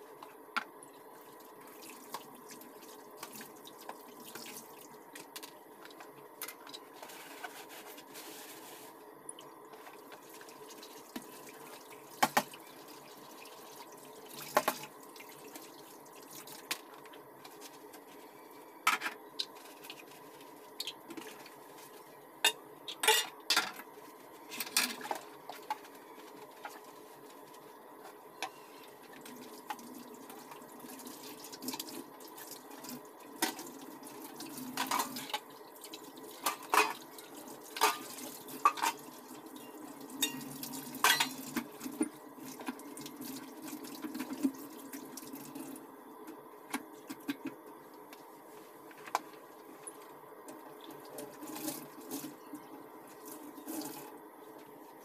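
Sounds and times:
sponge scrubbing: 0:07.0 - 0:09.0
metal pans clanking in sink: 0:22.4 - 0:23.8, 0:34.8 - 0:35.4, 0:36.4 - 0:37.0, 0:37.8 - 0:39.0, 0:39.6 - 0:42.1.

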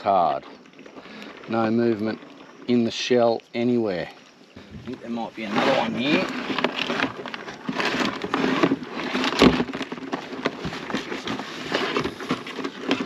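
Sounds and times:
crab shells clicking and scraping: 0:04.2 - 0:13.0.

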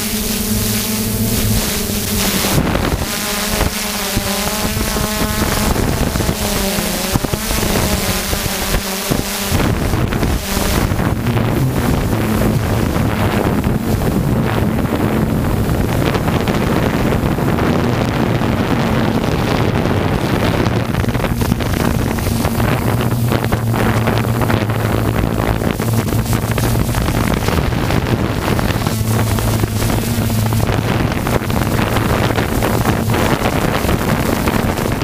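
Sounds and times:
drone motors droning: 0:00.0 - 0:35.0
wind rushing over microphone: 0:00.0 - 0:35.0.

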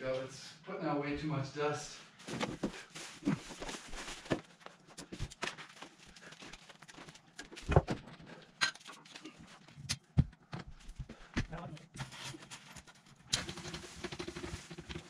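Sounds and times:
plastic sheeting rustling: 0:02.2 - 0:04.6.

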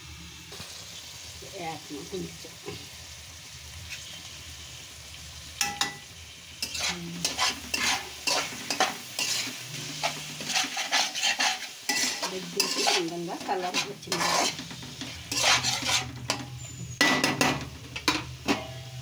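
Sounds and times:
chicken sizzling in a pan: 0:00.0 - 0:19.0
metal spoon scraping a pan: 0:05.6 - 0:19.0.

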